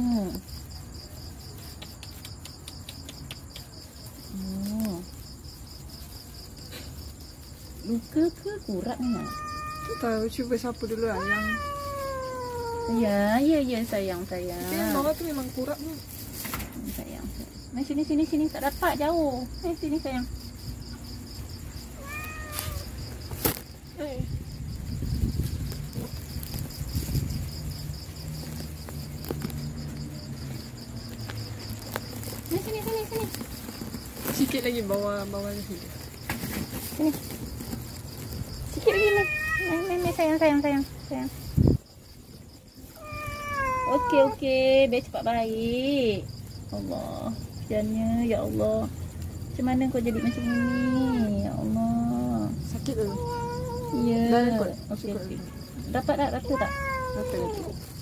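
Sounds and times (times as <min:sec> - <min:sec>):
crickets chirping: 0:00.0 - 0:58.0
rustling and handling noise: 0:00.0 - 0:58.0
cat meowing: 0:09.0 - 0:10.2, 0:11.1 - 0:13.1, 0:22.0 - 0:22.9, 0:38.9 - 0:40.1, 0:42.9 - 0:44.4, 0:50.1 - 0:51.3, 0:53.0 - 0:54.2, 0:56.4 - 0:57.7.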